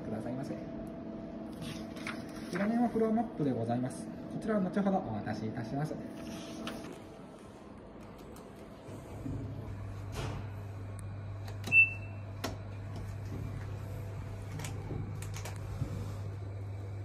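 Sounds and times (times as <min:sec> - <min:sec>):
key-card reader beep: 0:11.6 - 0:12.2.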